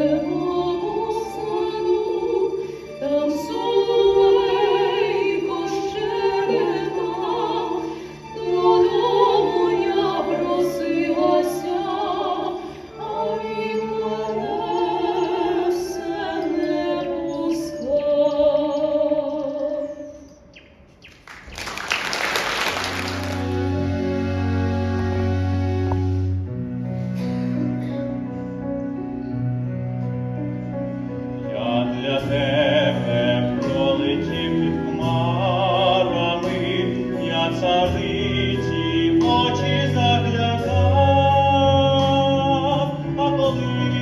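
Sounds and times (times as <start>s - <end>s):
operatic singing with vibrato: 0.0s - 20.5s, 31.2s - 44.0s
instrumental music: 21.5s - 44.0s.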